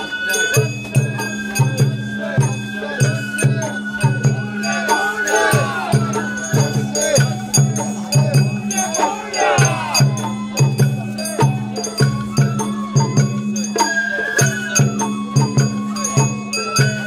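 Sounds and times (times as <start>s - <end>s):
held tone: 0.0s - 12.8s
flute melody: 0.0s - 17.0s
steady drum beat: 0.6s - 13.8s.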